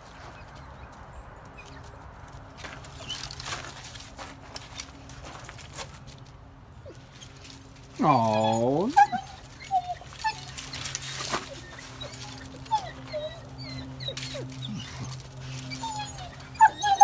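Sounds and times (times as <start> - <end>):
dog whimpering: 8.0 - 17.0.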